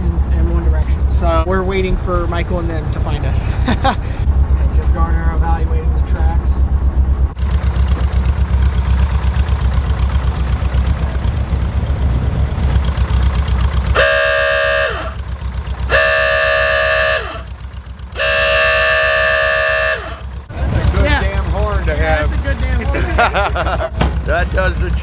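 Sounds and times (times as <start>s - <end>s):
low steady rumble: 0.0s - 25.0s
vehicle horn blasts: 13.8s - 20.4s.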